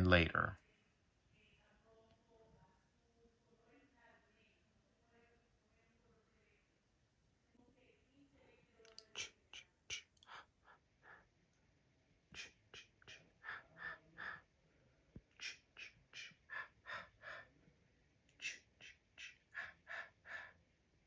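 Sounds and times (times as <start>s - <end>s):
breathy whispered syllables: 8.9s - 11.2s, 12.3s - 14.5s, 15.2s - 17.5s, 18.3s - 20.6s.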